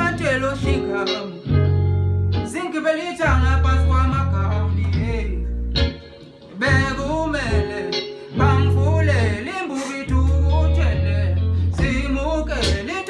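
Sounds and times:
man singing: 0:00.0 - 0:01.6, 0:02.4 - 0:05.5, 0:06.5 - 0:13.0
programmed beat with deep bass: 0:03.2 - 0:13.0.

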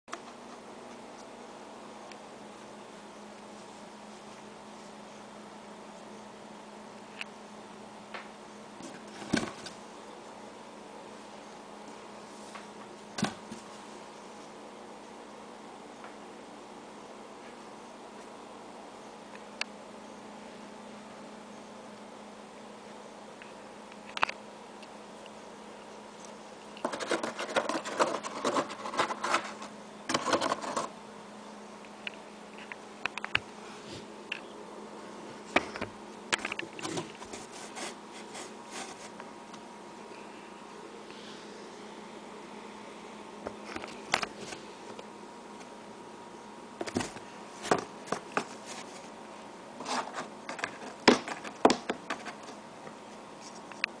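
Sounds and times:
cat scratching cardboard: 0:26.8 - 0:30.9, 0:36.8 - 0:39.2, 0:49.8 - 0:52.5.

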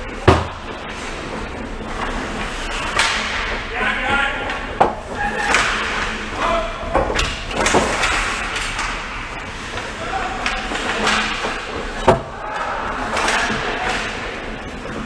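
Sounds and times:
hockey sticks and puck cracking: 0:01.9 - 0:03.7, 0:04.4 - 0:15.0
players shouting: 0:05.1 - 0:06.9, 0:10.0 - 0:11.4, 0:12.2 - 0:14.6.

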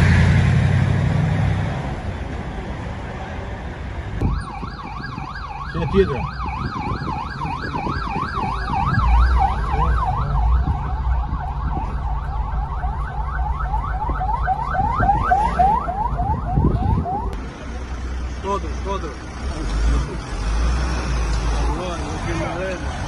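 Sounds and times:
low traffic rumble: 0:00.0 - 0:23.0
ambulance siren yelping: 0:04.2 - 0:17.4.

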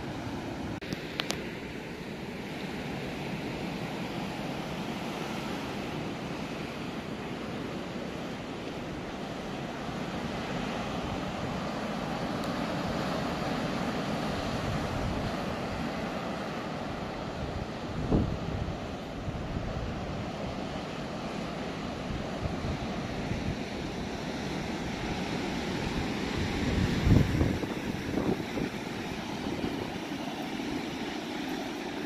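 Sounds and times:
surf breaking on beach: 0:00.0 - 0:32.0
wind buffeting microphone: 0:14.3 - 0:20.9, 0:21.8 - 0:32.0.

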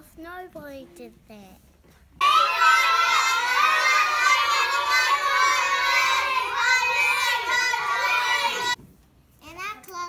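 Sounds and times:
children shouting: 0:02.2 - 0:08.8.

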